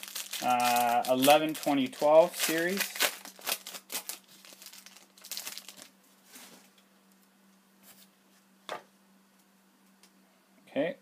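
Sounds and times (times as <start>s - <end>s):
wrapper crinkling and tearing: 0.0s - 5.9s
faint steady hum: 0.0s - 11.0s.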